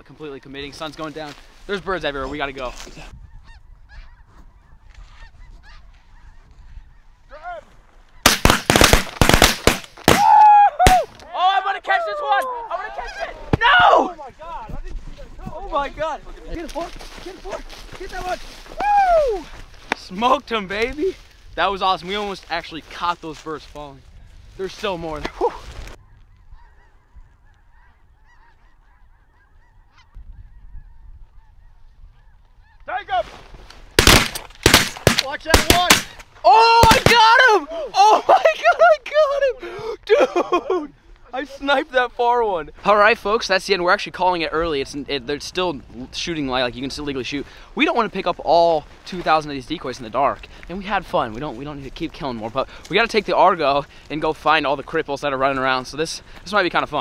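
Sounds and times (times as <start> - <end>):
geese calling in a flock: 3.3 - 7.6, 26.1 - 32.9
shotgun blasts: 8.2 - 10.3, 34.0 - 36.2, 36.8 - 37.2.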